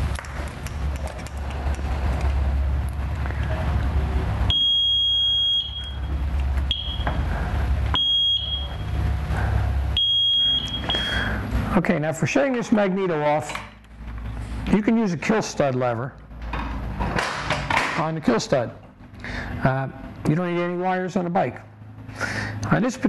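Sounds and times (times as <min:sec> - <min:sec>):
steady low hum: 0:00.0 - 0:23.0
high-pitched electronic beeps: 0:04.5 - 0:06.1, 0:06.7 - 0:07.2, 0:08.0 - 0:09.0, 0:10.0 - 0:11.2.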